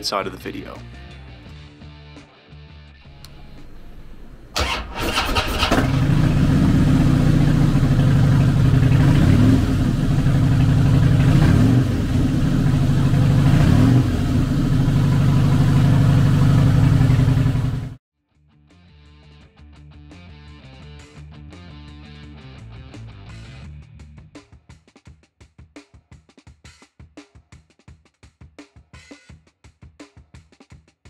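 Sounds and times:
motorcycle engine starting and idling: 0:03.1 - 0:18.0
motorcycle throttle revs: 0:03.2 - 0:18.0.

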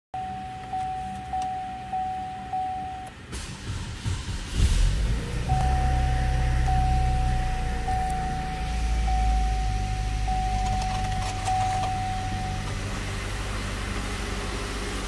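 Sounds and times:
dashboard chime: 0:00.2 - 0:03.1, 0:05.5 - 0:12.7
car engine starting and idling: 0:00.6 - 0:15.0.

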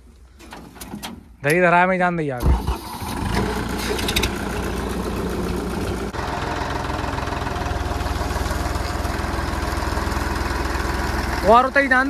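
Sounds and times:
diesel tractor engine idling: 0:02.5 - 0:12.0.

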